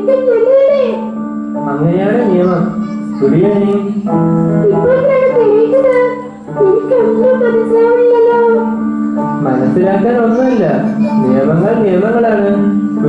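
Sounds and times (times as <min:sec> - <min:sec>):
instrumental chords: 0:00.0 - 0:13.0
woman singing: 0:03.9 - 0:08.7.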